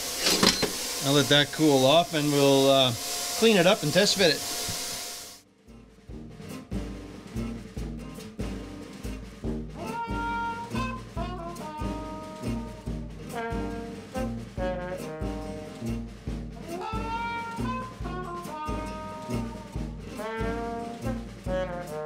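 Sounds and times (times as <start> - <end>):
up-tempo jazz with brass melody: 6.1 - 22.0.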